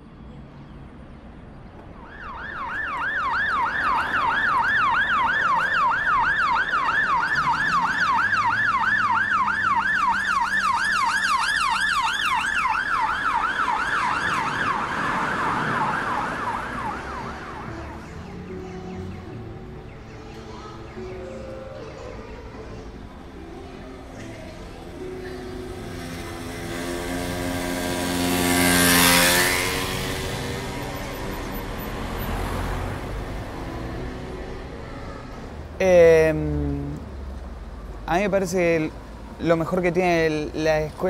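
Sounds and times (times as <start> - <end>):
emergency siren yelping: 2.0 - 19.4.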